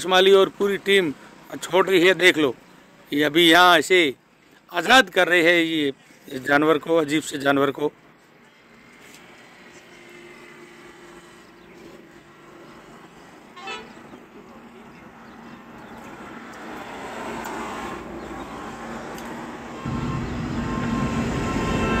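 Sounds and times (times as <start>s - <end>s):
motor vehicle noise: 8.0s - 22.0s
vehicle horn: 13.5s - 14.1s, 19.8s - 22.0s
rising and falling sound: 18.6s - 22.0s.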